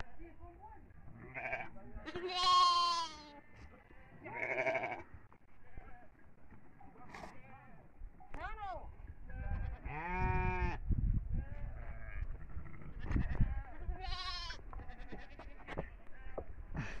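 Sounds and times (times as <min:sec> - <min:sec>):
sheep and goats bleating: 0:01.0 - 0:06.2, 0:09.2 - 0:17.0.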